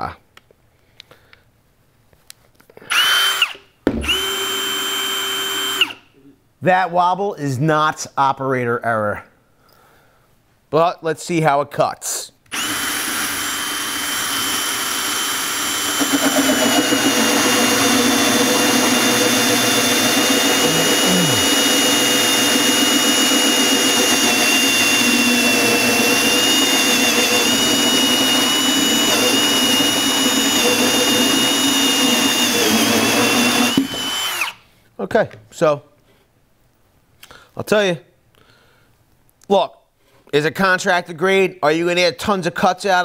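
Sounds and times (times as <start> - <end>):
drill motor whine: 2.9 - 6.0, 12.5 - 34.6
hole saw grinding through board: 12.6 - 34.6.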